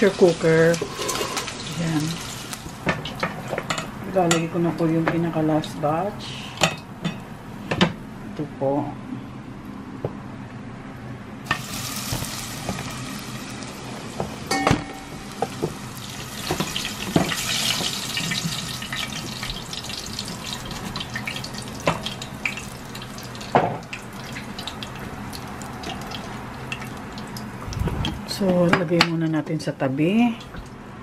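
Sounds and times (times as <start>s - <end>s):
chicken deep-frying in hot oil: 0.0s - 4.4s, 11.5s - 27.7s
metal utensils knocking on pot: 14.5s - 15.7s.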